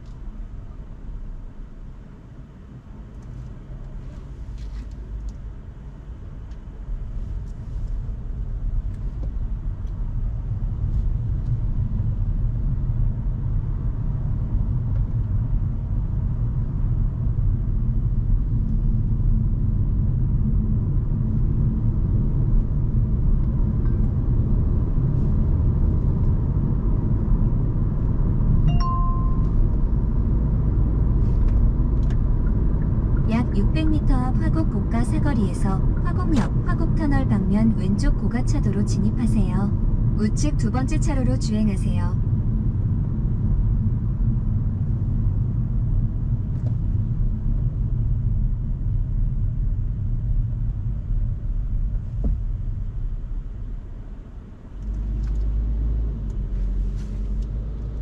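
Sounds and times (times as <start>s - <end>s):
road and tyre rumble: 0.0s - 58.0s
short electronic chime: 28.7s - 29.6s.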